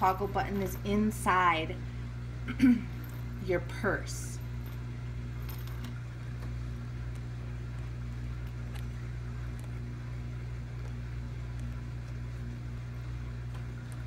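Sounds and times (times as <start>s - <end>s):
low machine hum: 0.0s - 14.0s
small metal chain clicking: 5.4s - 6.0s.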